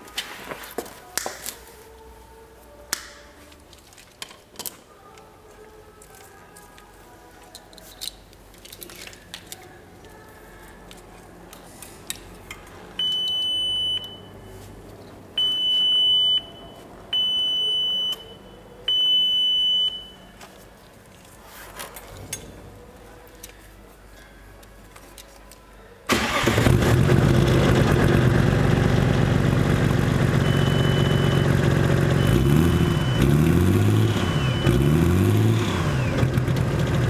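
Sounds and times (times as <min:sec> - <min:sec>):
wiring clicking and rustling: 0:03.0 - 0:10.2
high-pitched electronic beeps: 0:15.4 - 0:20.3, 0:32.2 - 0:35.0.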